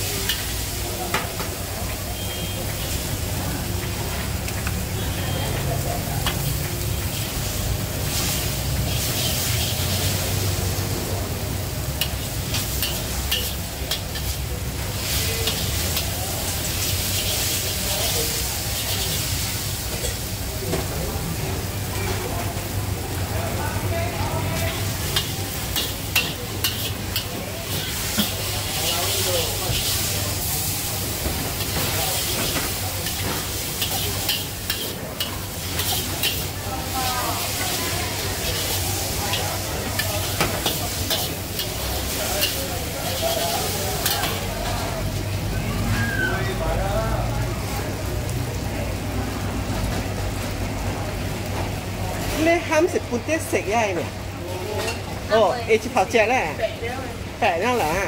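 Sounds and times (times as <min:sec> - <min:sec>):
noodles sizzling in a wok: 0:00.0 - 0:58.0
spatula scraping a wok: 0:07.0 - 0:11.0, 0:12.0 - 0:20.3, 0:24.7 - 0:44.6.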